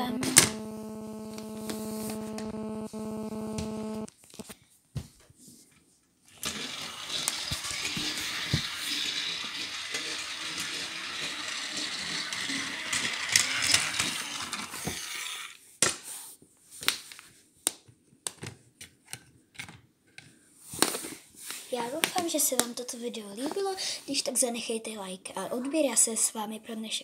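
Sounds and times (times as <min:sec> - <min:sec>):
toy train motor whirring: 0:06.3 - 0:15.6.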